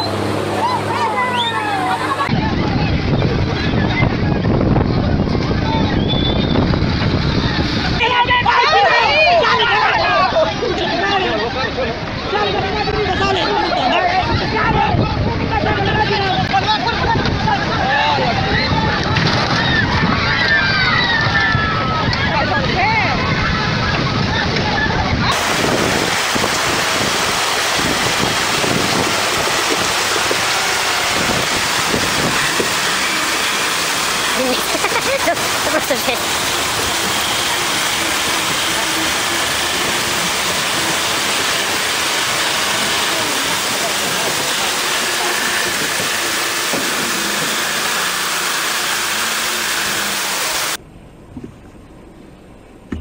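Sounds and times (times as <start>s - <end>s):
wind buffeting microphone: 0.1s - 48.2s
river water rushing: 25.3s - 50.8s.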